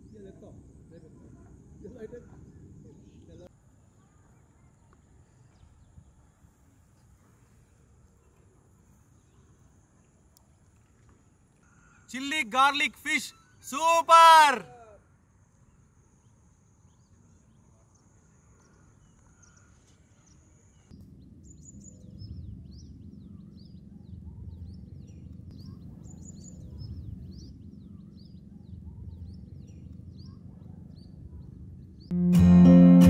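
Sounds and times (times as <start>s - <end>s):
small birds chirping: 15.6s - 32.1s
low steady rumble: 21.0s - 32.2s.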